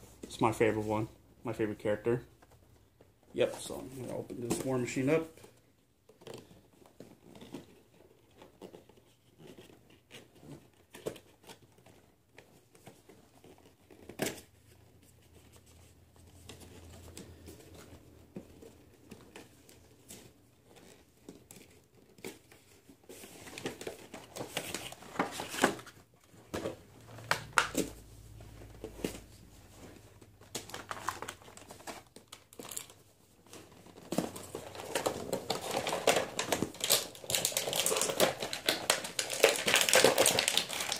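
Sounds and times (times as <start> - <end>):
packaging crinkling and tearing: 18.6 - 40.9.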